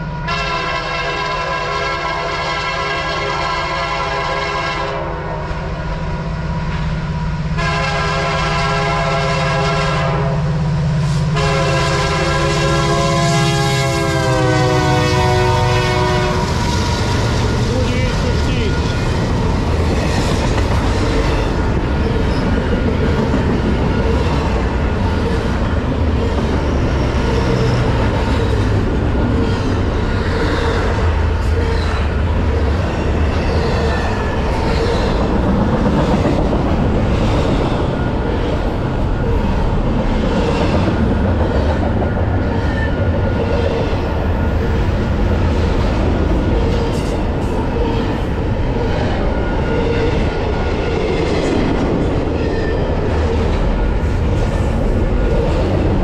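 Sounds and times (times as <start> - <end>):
train wheels rumbling on rail: 0.0 - 56.0.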